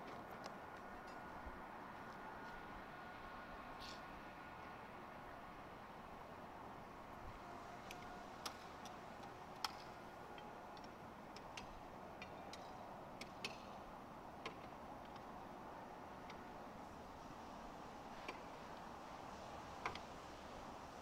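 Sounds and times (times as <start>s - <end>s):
steady low hiss: 0.0s - 21.0s
faint clicks and ticks: 7.8s - 13.8s, 16.2s - 16.4s.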